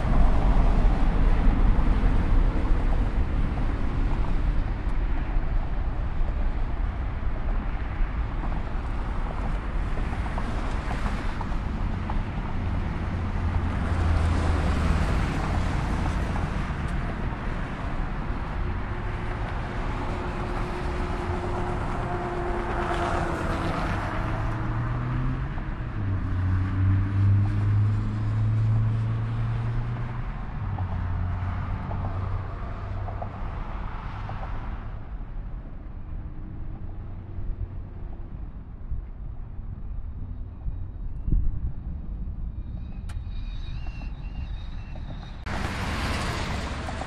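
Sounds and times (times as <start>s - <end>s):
jet airliner engine roar: 38.0s - 47.0s.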